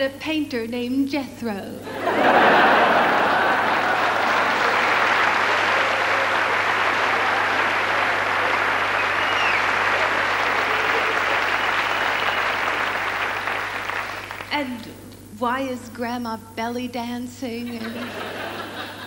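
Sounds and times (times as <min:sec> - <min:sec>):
audience applauding: 0:02.1 - 0:14.5.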